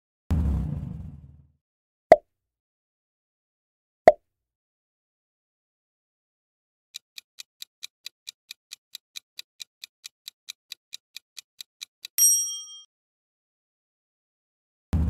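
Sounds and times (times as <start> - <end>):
clock ticking: 6.9 - 12.2
bell-like ding: 12.2 - 12.9.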